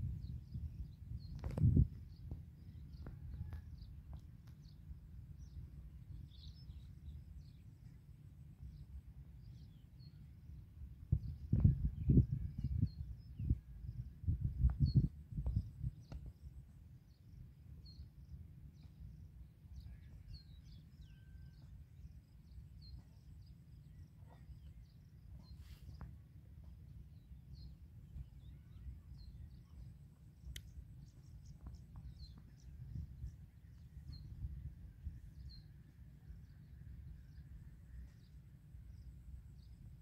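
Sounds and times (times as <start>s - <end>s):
sharp click: 30.5s - 30.7s.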